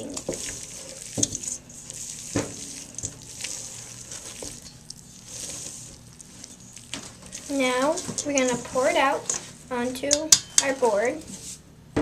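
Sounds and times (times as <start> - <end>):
utensil clinking against metal bowl: 0.0 - 1.6, 2.3 - 5.0, 6.5 - 9.4, 10.1 - 10.8
metal utensil scraping a bowl: 0.0 - 9.5.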